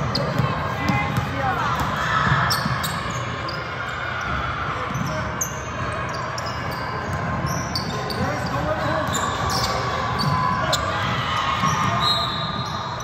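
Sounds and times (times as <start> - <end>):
murmur of a gym: 0.0 - 13.0
sneaker squeaks: 0.0 - 13.0
basketball bouncing: 0.1 - 3.3.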